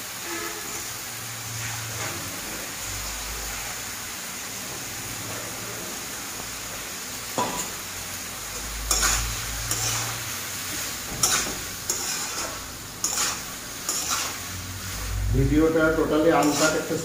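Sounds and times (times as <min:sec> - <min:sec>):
frying sizzle: 0:00.0 - 0:17.0
metal spatula scraping metal pan: 0:00.2 - 0:00.9, 0:01.5 - 0:02.6, 0:08.8 - 0:17.0.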